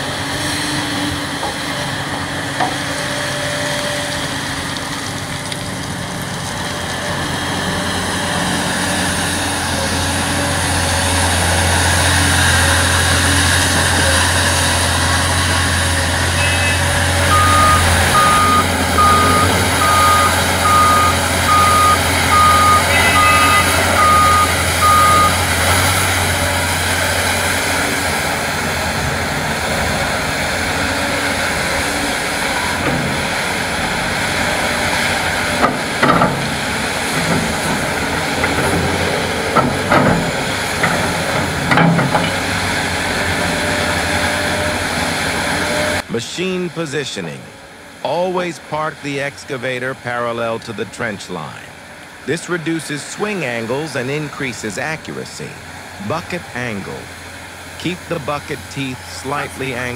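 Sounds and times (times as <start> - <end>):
diesel excavator engine drone: 0.0 - 59.9
reversing alarm beeping: 14.9 - 25.5.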